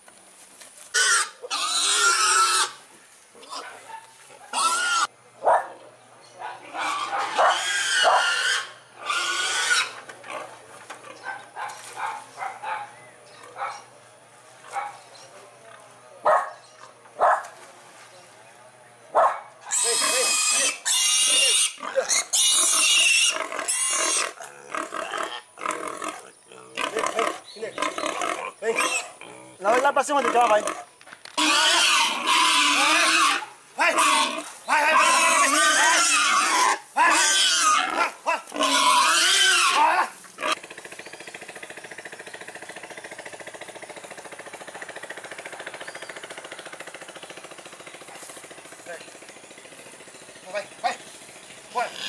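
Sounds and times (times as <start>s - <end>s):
pig squealing: 1.0s - 2.8s, 3.4s - 3.7s, 4.5s - 5.1s, 6.7s - 10.5s, 19.6s - 40.6s, 51.7s - 52.0s.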